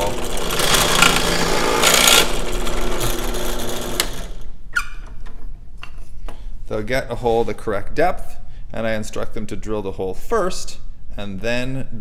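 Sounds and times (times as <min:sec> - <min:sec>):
drill bit boring into wood: 0:00.0 - 0:04.5
drill press motor hum: 0:00.0 - 0:04.5.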